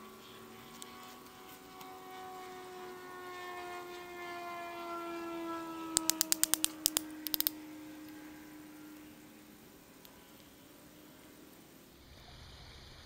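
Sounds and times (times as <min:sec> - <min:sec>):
steady hum: 0:00.0 - 0:13.0
baton knocking knife blade: 0:06.0 - 0:07.5.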